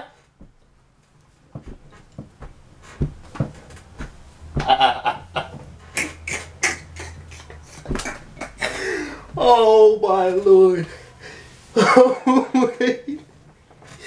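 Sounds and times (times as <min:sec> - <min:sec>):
man laughing wheezily: 0:04.6 - 0:09.2, 0:11.8 - 0:13.2.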